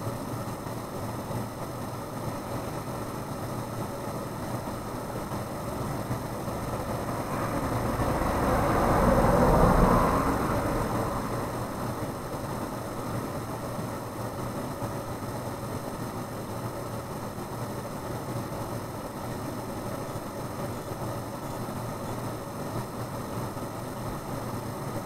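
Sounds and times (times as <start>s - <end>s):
vehicle passing by: 6.1s - 13.1s.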